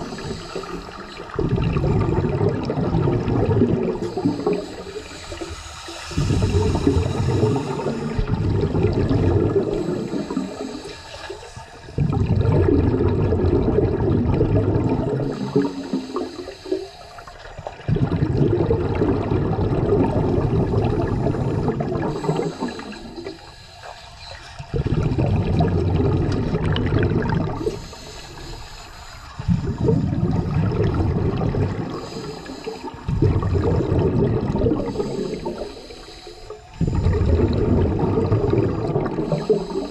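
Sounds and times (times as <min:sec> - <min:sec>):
underwater regulator bubbling: 0:00.0 - 0:39.9.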